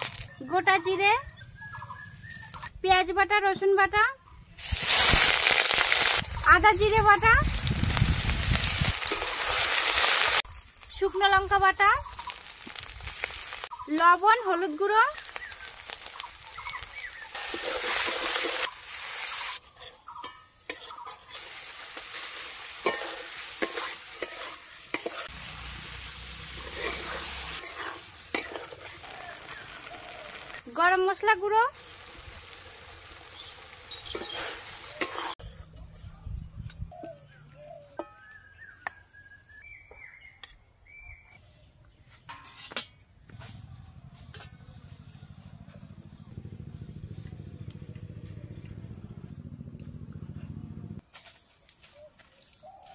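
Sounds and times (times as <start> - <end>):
food sizzling in hot oil: 0.0 - 0.3, 4.6 - 35.4
birds chirping and whistling: 1.2 - 2.8, 11.9 - 12.5, 15.1 - 17.7, 33.3 - 42.2
metal spatula scraping pan: 17.4 - 18.7, 19.6 - 22.2, 22.8 - 25.3, 26.5 - 29.0, 34.0 - 35.4.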